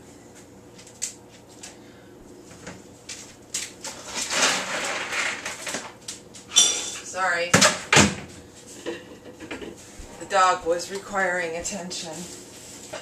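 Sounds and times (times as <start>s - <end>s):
loud rustling and scraping: 3.8s - 5.8s.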